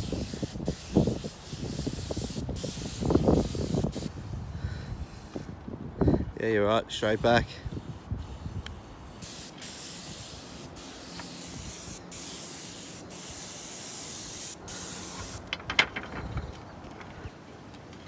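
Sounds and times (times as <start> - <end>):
spray gun hissing: 0.0 - 5.5, 6.9 - 15.5.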